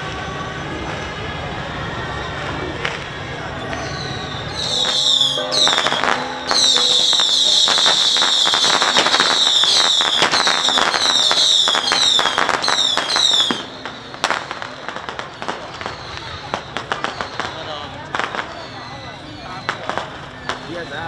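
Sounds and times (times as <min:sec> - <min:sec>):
firecrackers crackling: 0:00.0 - 0:21.0
high falling whistles: 0:03.7 - 0:14.2.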